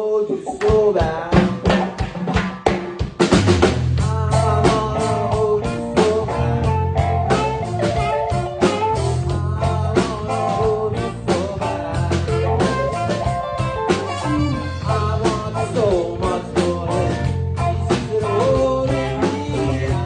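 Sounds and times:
drum kit steady beat: 0:00.3 - 0:20.0
electric bass line: 0:03.2 - 0:20.0
saxophones sustained melody: 0:12.3 - 0:15.2.

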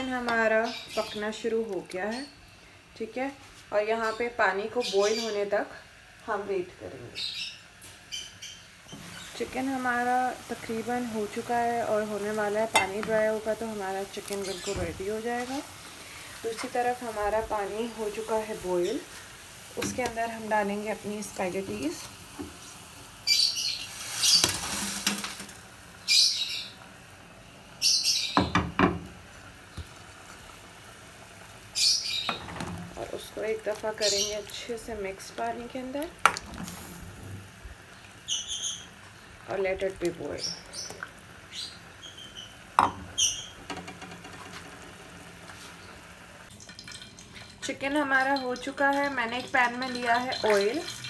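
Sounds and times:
small bird chirping: 0:00.5 - 0:01.3, 0:07.1 - 0:09.4, 0:23.2 - 0:24.5, 0:26.0 - 0:26.8, 0:27.8 - 0:28.5, 0:31.7 - 0:32.4, 0:37.9 - 0:39.3, 0:40.4 - 0:43.6
boiling water: 0:08.7 - 0:51.0
high squeaky chirps: 0:41.5 - 0:43.6.

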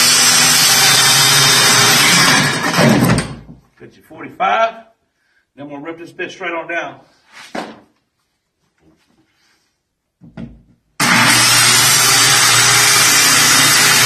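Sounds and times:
circular saw cutting plywood: 0:00.0 - 0:03.3, 0:11.0 - 0:14.0.

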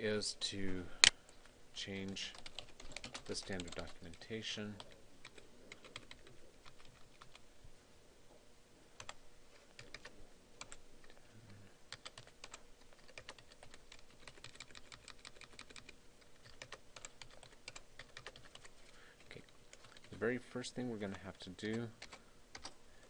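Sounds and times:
computer keyboard typing: 0:02.3 - 0:04.2, 0:04.8 - 0:07.4, 0:09.0 - 0:09.2, 0:09.8 - 0:10.8, 0:11.9 - 0:20.2, 0:21.1 - 0:22.8.

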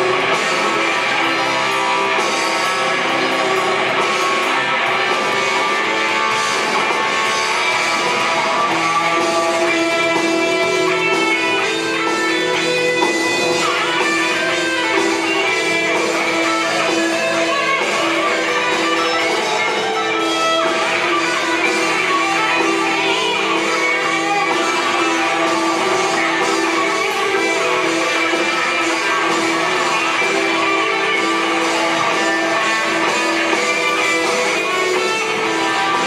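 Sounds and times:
electric guitar held notes: 0:00.0 - 0:36.0
live progressive rock band: 0:00.0 - 0:36.0.

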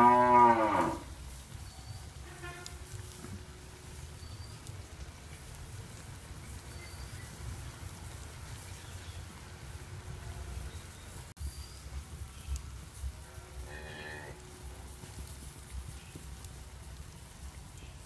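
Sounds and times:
bird chirps: 0:06.7 - 0:07.4.

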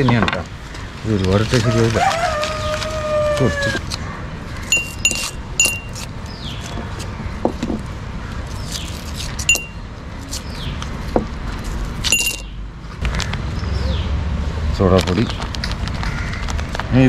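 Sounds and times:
candies clinking into glass: 0:12.1 - 0:12.5.

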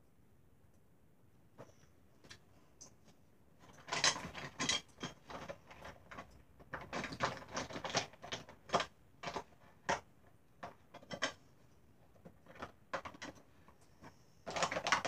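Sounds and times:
plastic items clicking and tapping: 0:03.6 - 0:11.4, 0:12.1 - 0:15.0.

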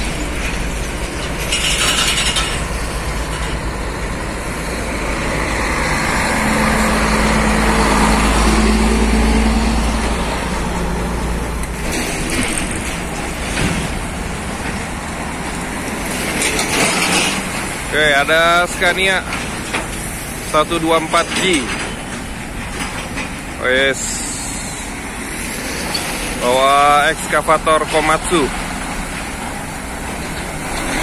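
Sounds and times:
diesel truck passing: 0:00.0 - 0:31.0.

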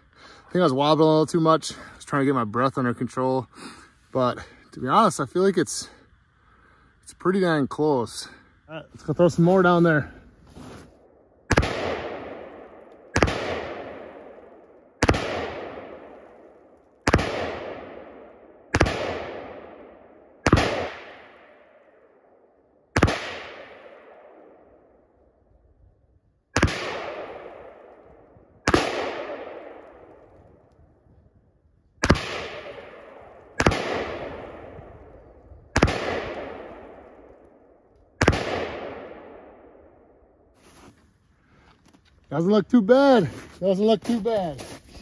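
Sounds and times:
rifle shots with echo: 0:11.4 - 0:25.0, 0:26.5 - 0:30.6, 0:32.0 - 0:40.3.

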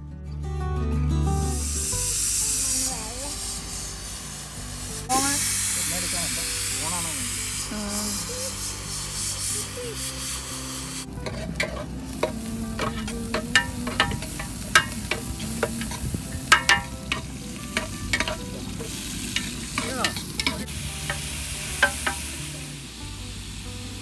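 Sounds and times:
food sizzling: 0:01.4 - 0:24.0
utensil clinking and scraping pot: 0:11.2 - 0:22.4.

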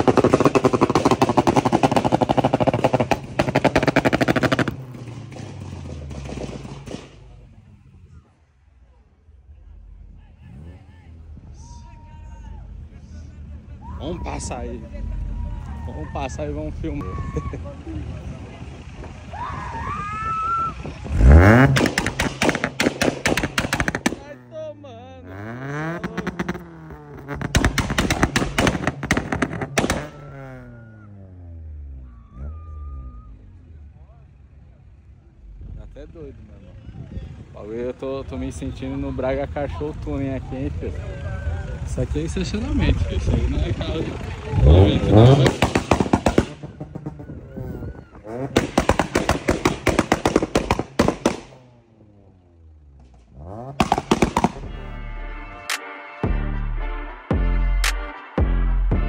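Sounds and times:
car engine revving: 0:00.0 - 0:08.3, 0:20.8 - 0:36.8, 0:37.4 - 0:55.6
exhaust popping and crackling: 0:00.0 - 0:08.3, 0:18.2 - 0:31.1, 0:41.8 - 0:55.0.

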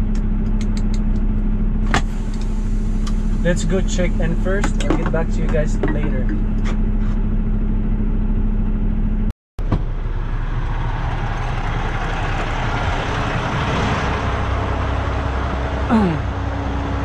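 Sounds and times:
diesel truck engine idling: 0:00.0 - 0:17.0
rushing open air noise: 0:09.6 - 0:17.0.

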